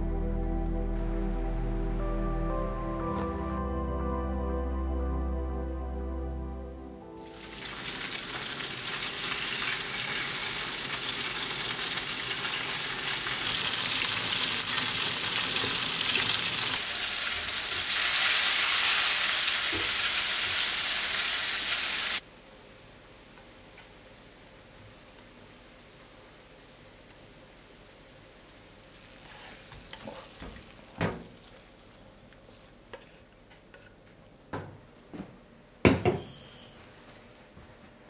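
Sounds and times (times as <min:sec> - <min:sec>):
food sizzling in a pan: 0:07.2 - 0:22.2, 0:23.1 - 0:33.3.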